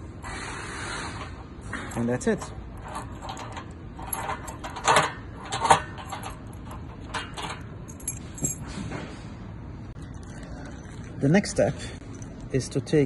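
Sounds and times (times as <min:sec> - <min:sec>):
metal lock parts clicking: 0:01.7 - 0:08.7
key knocking against metal: 0:01.9 - 0:08.7.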